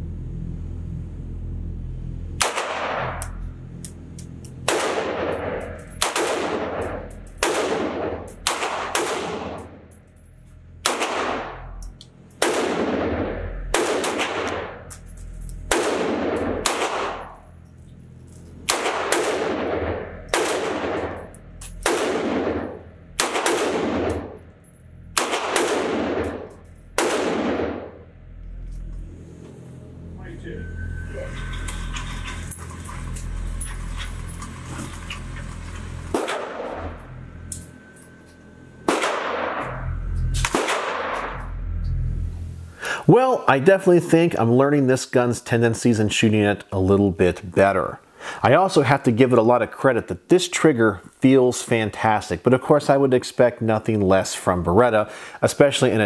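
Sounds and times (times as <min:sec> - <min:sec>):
pistol shots echoing: 0:04.6 - 0:09.8, 0:10.8 - 0:11.6, 0:12.4 - 0:14.9, 0:15.7 - 0:17.4, 0:18.7 - 0:24.4, 0:25.2 - 0:28.0, 0:36.1 - 0:37.0, 0:38.8 - 0:39.8, 0:40.4 - 0:41.4.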